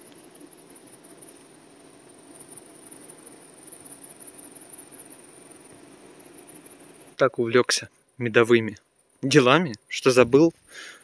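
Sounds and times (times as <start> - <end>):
bees humming: 0.0 - 7.2
cricket chirping: 0.0 - 11.0.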